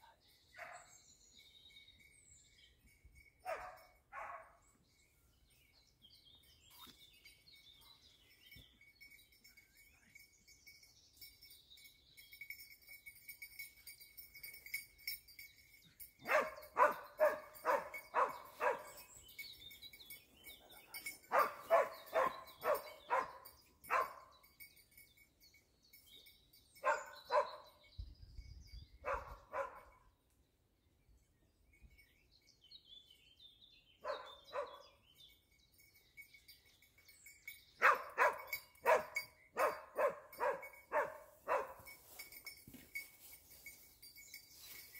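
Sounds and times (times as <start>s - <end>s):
hound barking: 3.5s - 4.6s, 16.2s - 19.0s, 21.2s - 24.3s, 26.8s - 27.6s, 29.0s - 29.9s, 34.0s - 34.9s, 37.8s - 41.9s.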